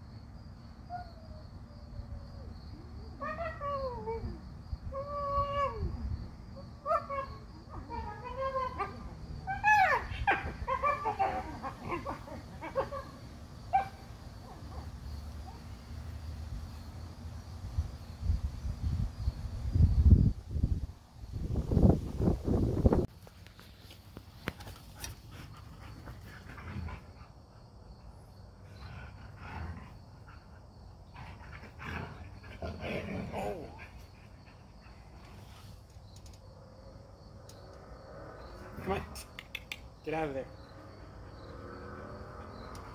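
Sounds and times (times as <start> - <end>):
dogs yowling and whining: 0.9 - 15.7.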